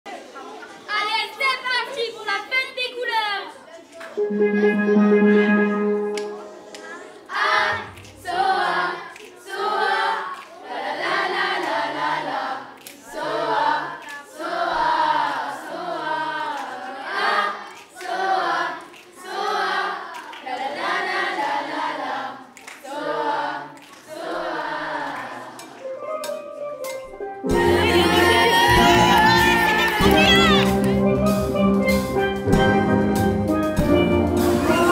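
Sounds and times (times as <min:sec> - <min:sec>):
low bass line: 0:04.2 - 0:06.6
steel drum band: 0:04.2 - 0:07.2, 0:26.0 - 0:34.9
children singing together: 0:05.7 - 0:25.8.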